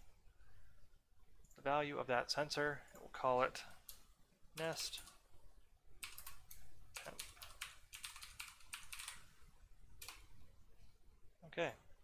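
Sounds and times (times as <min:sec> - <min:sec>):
keyboard typing: 0:06.0 - 0:09.3, 0:10.0 - 0:10.3.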